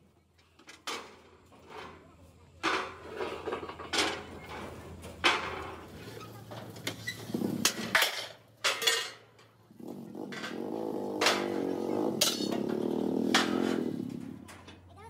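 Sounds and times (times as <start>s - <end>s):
metal pieces clanking on steel beams: 0.6s - 9.6s, 10.2s - 14.9s.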